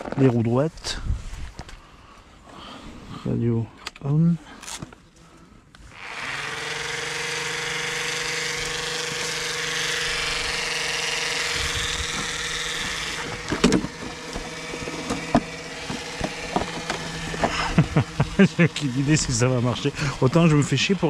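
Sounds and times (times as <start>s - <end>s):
motor running: 5.9s - 21.0s.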